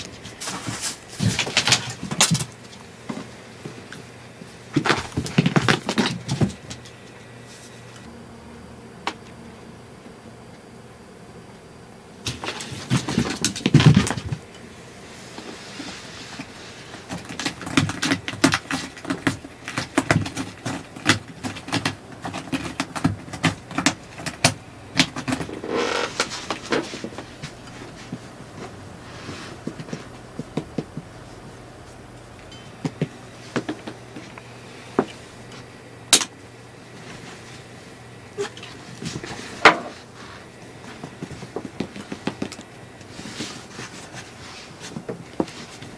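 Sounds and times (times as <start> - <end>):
scuffle and thumps: 0.0 - 3.3, 4.7 - 6.8, 12.3 - 14.5, 43.1 - 45.9.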